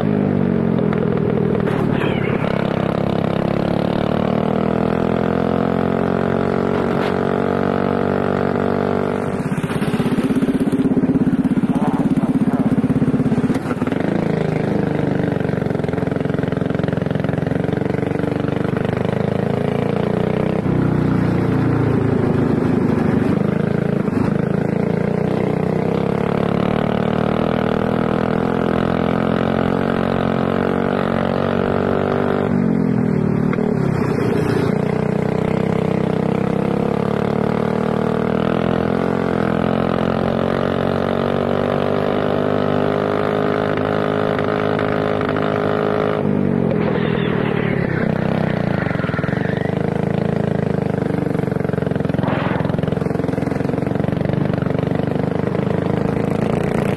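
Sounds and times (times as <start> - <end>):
racing kart engine at full throttle: 0.0 - 56.9.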